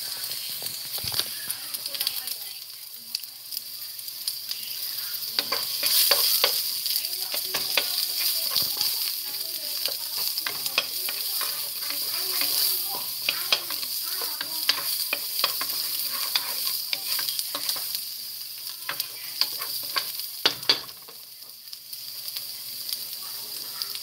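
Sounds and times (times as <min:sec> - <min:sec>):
onion sizzling in hot oil: 0:00.0 - 0:24.0
wooden spoon scraping a pan: 0:05.4 - 0:18.0, 0:18.8 - 0:21.0.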